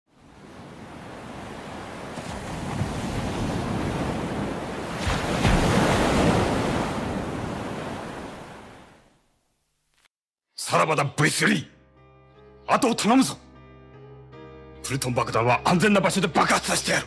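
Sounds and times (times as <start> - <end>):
ocean waves breaking: 0.1 - 9.2.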